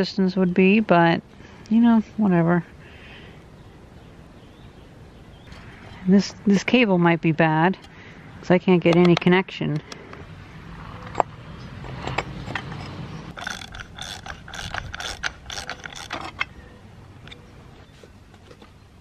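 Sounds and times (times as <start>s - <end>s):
metal ratchet clicking: 13.3s - 16.4s.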